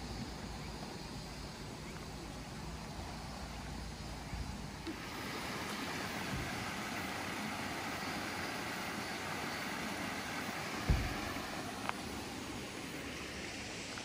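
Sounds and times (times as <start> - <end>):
water flowing over weirs: 2.5 - 14.0
low thump: 10.8 - 11.4.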